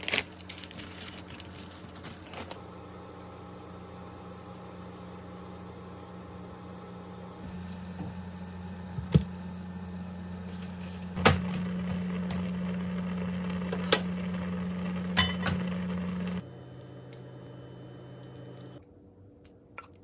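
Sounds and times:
cooktop electric hum: 0.0s - 20.0s
water boiling: 2.6s - 16.4s.

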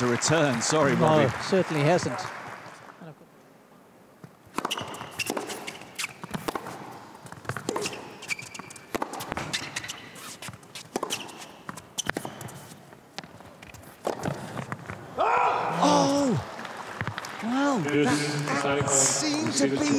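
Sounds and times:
tennis ball bouncing: 4.2s - 15.0s
tennis racket hitting ball: 4.4s - 15.0s.

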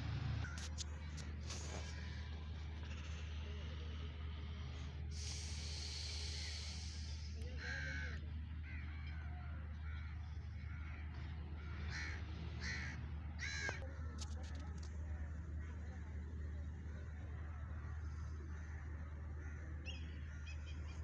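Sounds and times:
steady low hum: 0.0s - 21.0s
hiss: 5.1s - 7.4s
crows cawing: 6.4s - 14.2s, 17.5s - 20.5s.

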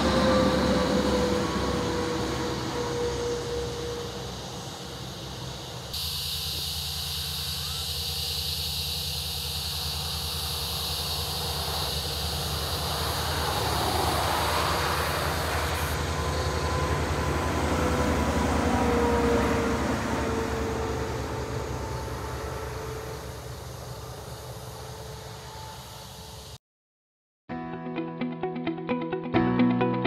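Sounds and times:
truck passing: 0.0s - 6.0s, 6.8s - 26.3s
strummed guitar music: 27.5s - 30.0s.

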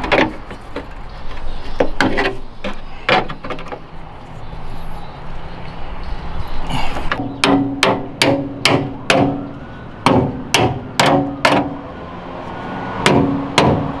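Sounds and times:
hammer striking sheet metal: 7.2s - 9.4s, 10.0s - 11.8s, 13.0s - 14.0s.

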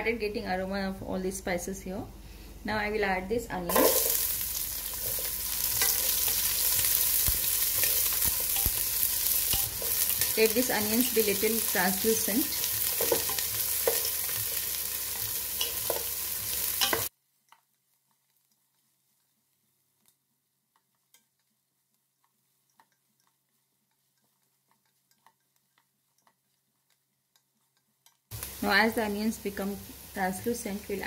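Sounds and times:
onions sizzling in oil: 3.7s - 20.0s, 27.9s - 31.0s
wooden spatula clicking on pot: 22.2s - 28.3s.

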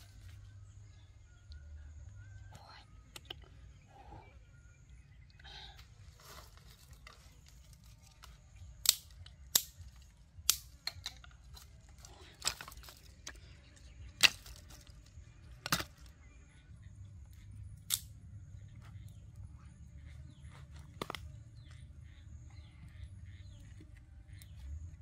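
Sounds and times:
dry sticks cracking: 6.2s - 16.1s, 17.8s - 18.2s.

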